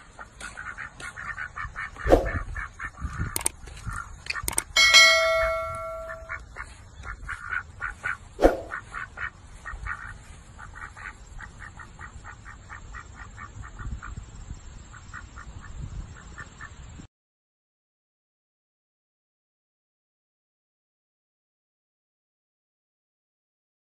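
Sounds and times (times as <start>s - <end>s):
ducks quacking: 0.0s - 4.5s, 6.1s - 16.9s
loud ringing chime: 4.8s - 6.4s.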